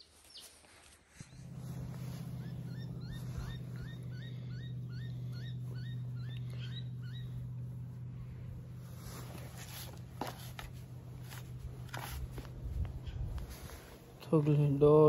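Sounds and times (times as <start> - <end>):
steady low hum: 0.8 - 15.0
rising animal chirps: 1.3 - 7.7.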